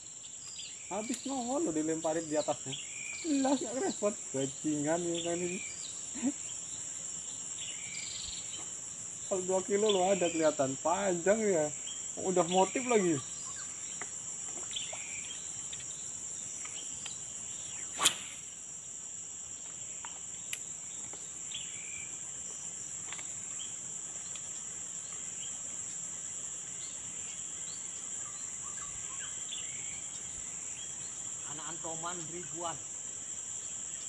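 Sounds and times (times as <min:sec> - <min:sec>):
insects droning: 0:00.0 - 0:34.0
sharp click: 0:18.0 - 0:18.4.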